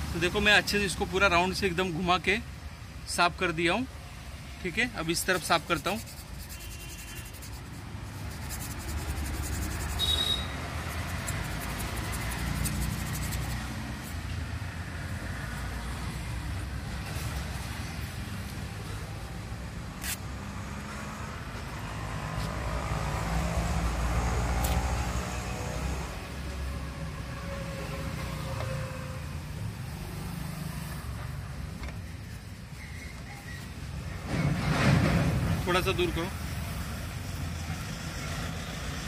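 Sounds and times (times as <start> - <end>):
road traffic rumble: 0.0 - 39.0
abrasive paper rubbing metal: 5.2 - 14.2
vehicle passing: 5.2 - 18.4, 20.3 - 31.6.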